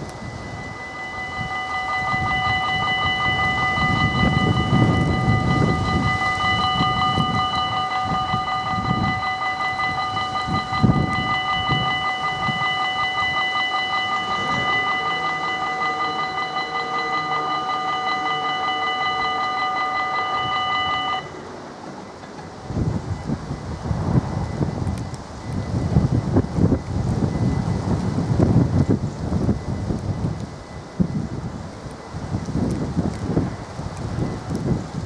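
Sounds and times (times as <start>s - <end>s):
level crossing warning bell: 0.0s - 35.0s
wind rumbling on microphone: 0.0s - 35.0s.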